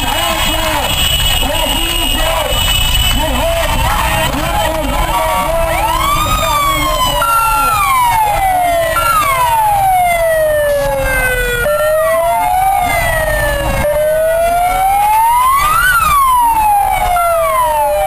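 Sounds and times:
emergency siren wailing: 0.0 - 18.0
low street noise: 0.0 - 18.0.

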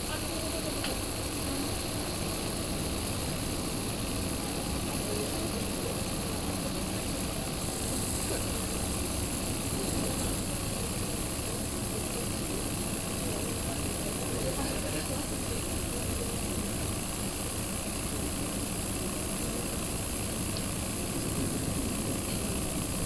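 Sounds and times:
train wheels on rails: 0.0 - 23.0.

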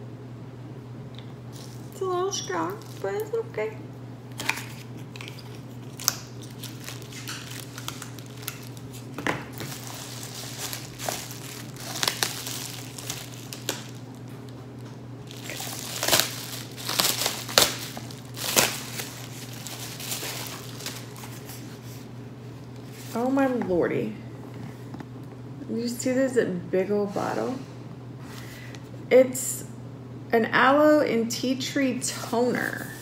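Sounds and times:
bubble wrap crinkling: 1.5 - 3.6, 4.3 - 23.2.

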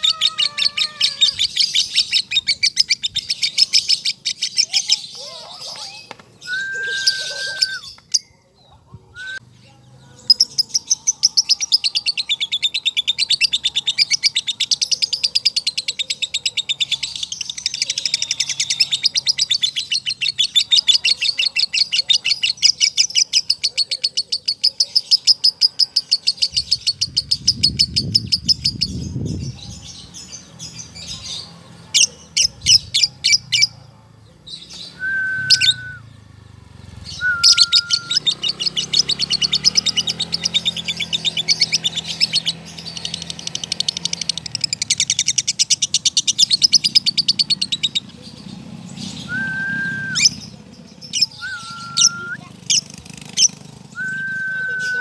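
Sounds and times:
bird whistled notes: 6.4 - 8.0, 34.8 - 36.1, 37.1 - 38.3, 49.2 - 50.6, 51.2 - 52.5, 53.9 - 55.0.

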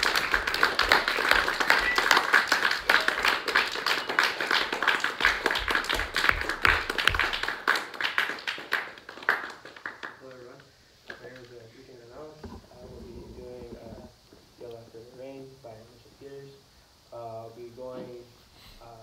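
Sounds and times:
small group applauding: 0.0 - 11.6.

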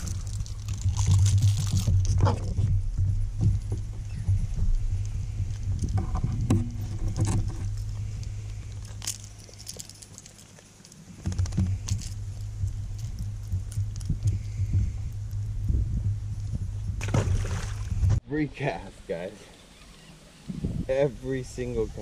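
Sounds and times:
steady low hum: 0.0 - 22.0
fishing hooks jingling and clicking: 8.7 - 11.0.

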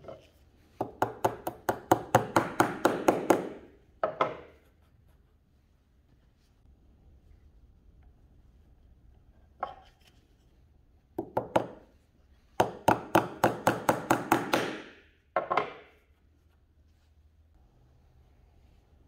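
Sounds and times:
hammer tapping a pin: 0.8 - 4.5, 11.2 - 11.8.

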